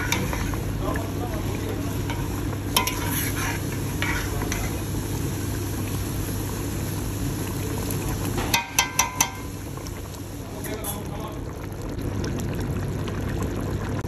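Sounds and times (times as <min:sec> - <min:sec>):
ladle stirring: 0:00.0 - 0:05.0, 0:08.4 - 0:09.5
curry bubbling in a pot: 0:00.0 - 0:14.0
ladle clinking against pot: 0:08.5 - 0:09.5.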